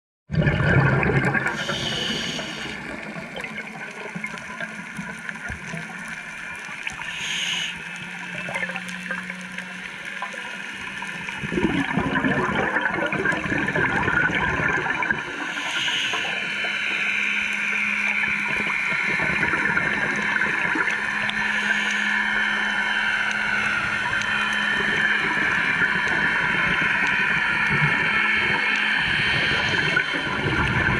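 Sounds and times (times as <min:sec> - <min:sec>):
gurgling regulator bubbles: 0:00.3 - 0:30.9
underwater watery hiss: 0:01.4 - 0:03.2, 0:06.8 - 0:08.3, 0:14.9 - 0:25.8
faint steady tones: 0:01.4 - 0:30.9.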